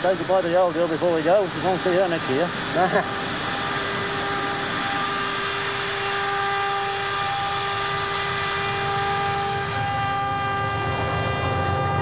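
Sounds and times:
steam hissing: 0:00.0 - 0:11.4.

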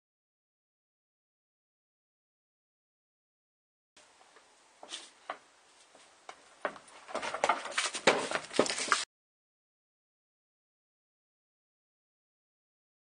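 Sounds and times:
ball and shoes tapping on wooden deck: 0:04.8 - 0:09.0.

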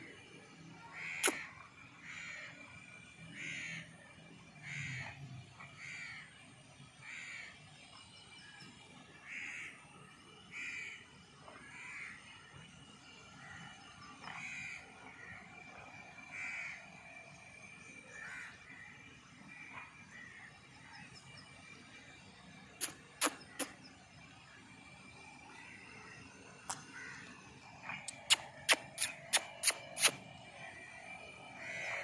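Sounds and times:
bird harsh calls: 0:00.8 - 0:02.7, 0:26.9 - 0:32.0.

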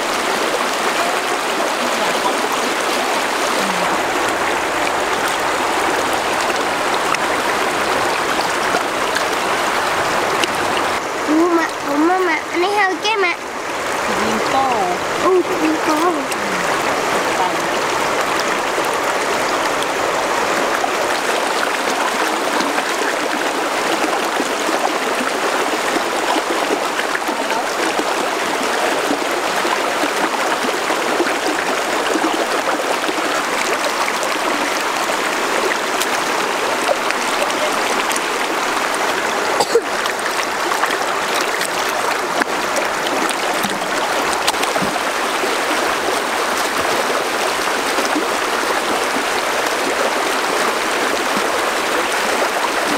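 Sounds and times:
river rushing over rocks: 0:00.0 - 0:52.9
hands splashing in water: 0:39.9 - 0:45.2.

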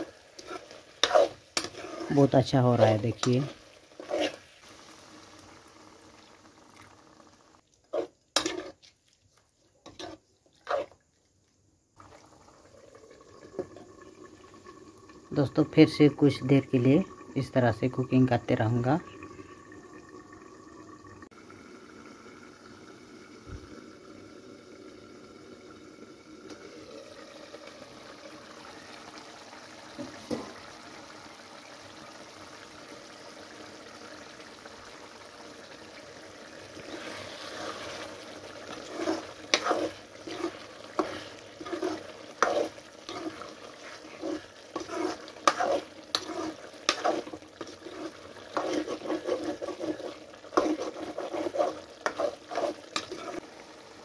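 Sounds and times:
spoon scraping and knocking pan: 0:00.0 - 0:02.3, 0:07.9 - 0:08.9, 0:09.8 - 0:11.0, 0:38.7 - 0:53.4
curry bubbling in a pan: 0:00.0 - 0:54.0.

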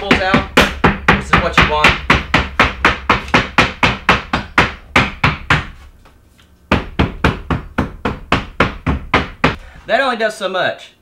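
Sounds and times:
hammer knocking on wood: 0:00.0 - 0:05.8, 0:06.7 - 0:09.6.

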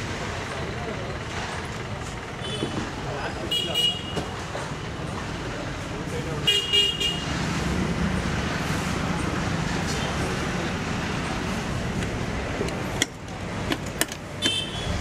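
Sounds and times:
road traffic noise: 0:00.0 - 0:15.0
sharp clicks and knocks: 0:11.9 - 0:14.7.

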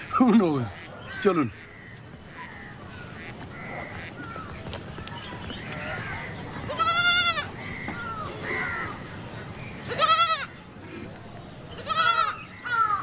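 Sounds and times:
goat bleating: 0:06.7 - 0:07.5, 0:09.9 - 0:10.5, 0:11.8 - 0:12.4.

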